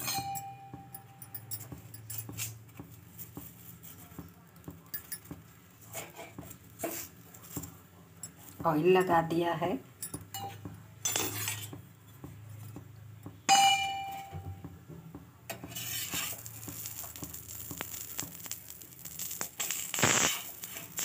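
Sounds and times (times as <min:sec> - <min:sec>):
metallic clink: 0:00.0 - 0:02.6, 0:04.9 - 0:05.4, 0:09.9 - 0:11.7
flatbread sizzling on hot griddle: 0:01.6 - 0:07.8, 0:15.5 - 0:21.0
steel spatula scraping: 0:05.8 - 0:07.6, 0:10.3 - 0:11.8, 0:15.5 - 0:21.0.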